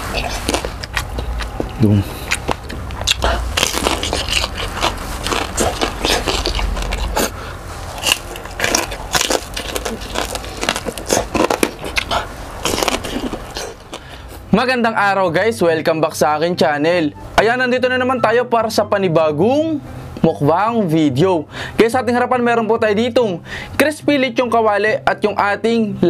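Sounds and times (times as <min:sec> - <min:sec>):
chewing: 0:00.0 - 0:14.4
crispy crunching bites: 0:00.2 - 0:07.3, 0:07.9 - 0:14.1.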